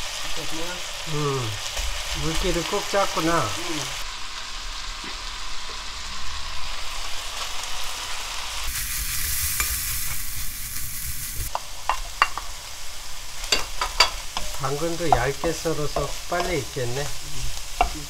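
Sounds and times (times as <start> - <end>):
meat sizzling in a frying pan: 0.0 - 18.0
wooden spatula stirring: 14.3 - 18.0.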